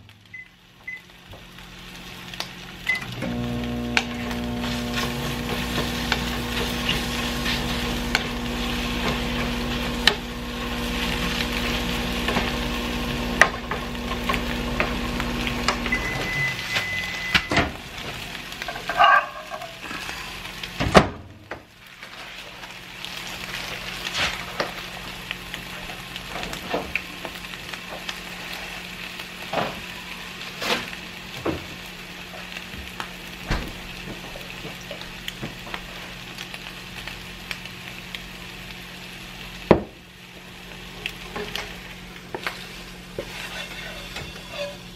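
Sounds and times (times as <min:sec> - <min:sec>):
microwave oven humming: 0:00.0 - 0:18.9
eggs sizzling in a frying pan: 0:00.0 - 0:44.9
microwave beep: 0:00.3 - 0:01.1, 0:02.8 - 0:06.2, 0:14.1 - 0:17.7
wooden spoon scraping a pan: 0:04.2 - 0:15.9, 0:42.3 - 0:44.9.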